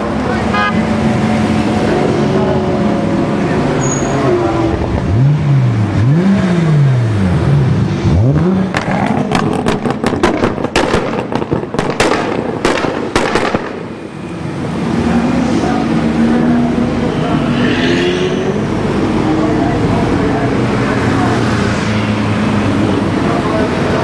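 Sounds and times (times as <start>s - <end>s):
cars rolling past: 0.0s - 24.0s
sports car engine revving: 0.5s - 24.0s
exhaust pops and bangs: 8.7s - 13.9s.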